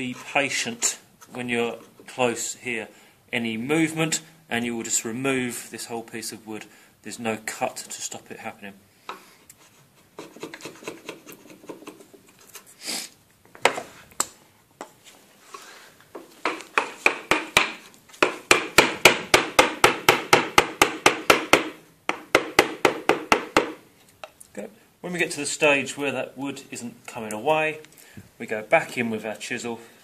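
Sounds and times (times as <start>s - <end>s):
mallet tapping chisel: 16.4s - 24.4s.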